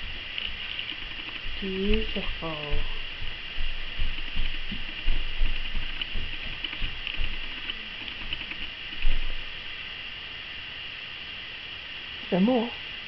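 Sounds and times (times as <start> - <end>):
child's feet stamping on rug: 1.4 - 8.4.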